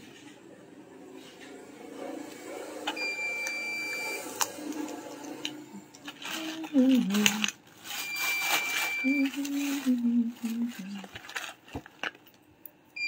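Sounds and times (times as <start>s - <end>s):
high electronic beep: 2.9s - 4.4s
woman's voice: 6.1s - 7.6s, 9.0s - 11.2s.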